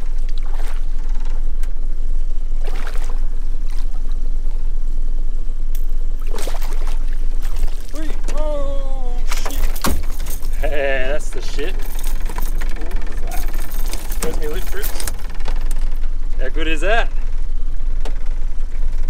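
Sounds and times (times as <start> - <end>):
steady low rumble: 0.0 - 19.0
fish splashing at the surface: 0.2 - 0.9, 2.6 - 4.0, 6.2 - 8.2
man exclaiming: 7.9 - 9.5.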